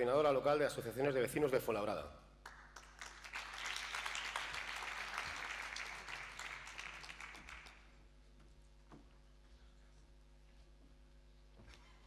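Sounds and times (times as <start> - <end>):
audience applauding: 2.4 - 8.0.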